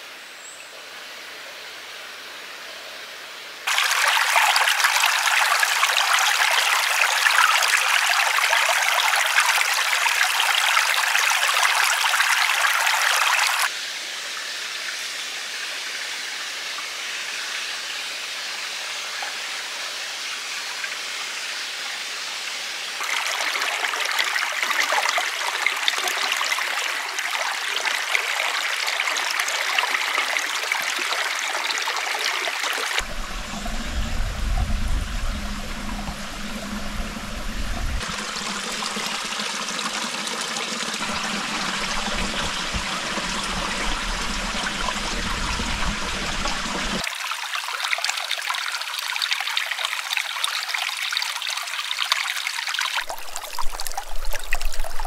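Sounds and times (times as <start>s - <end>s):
running water rushing: 3.7s - 19.1s, 22.8s - 55.0s
low rumble: 33.0s - 39.2s, 41.0s - 47.0s.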